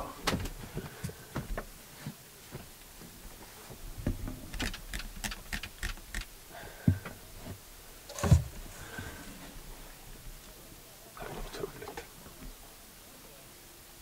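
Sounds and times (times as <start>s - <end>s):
camera handling noise: 4.6s - 6.3s.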